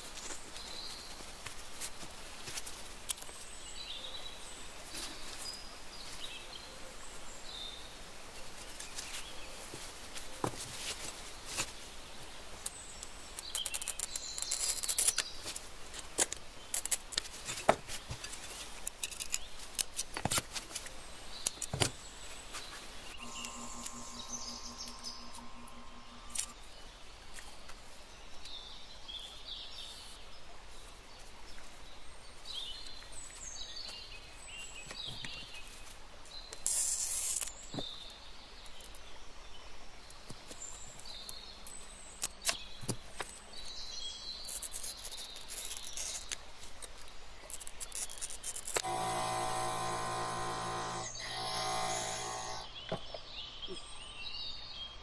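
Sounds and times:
brief steady hum: 23.2 - 26.6, 48.8 - 52.7.

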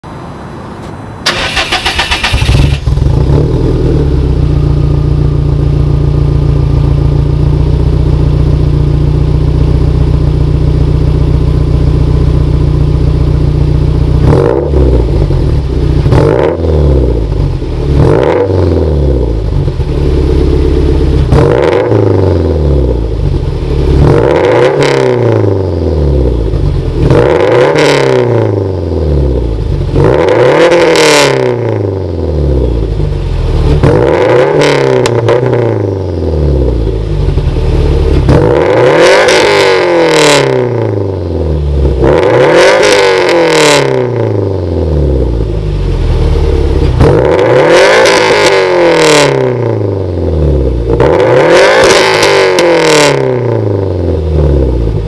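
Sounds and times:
car engine idling and revving: 0.0 - 55.0
engine cranking and starting: 1.2 - 3.1.

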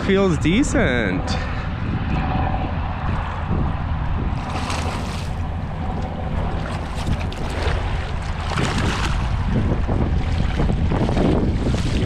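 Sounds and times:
wind buffeting microphone: 0.0 - 12.0
water lapping and splashing: 4.3 - 12.0.

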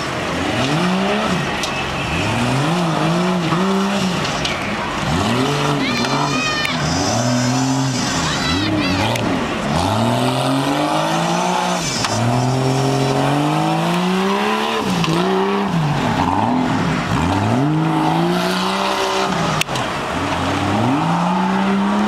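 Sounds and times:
engine revving hard: 4.9 - 22.0.

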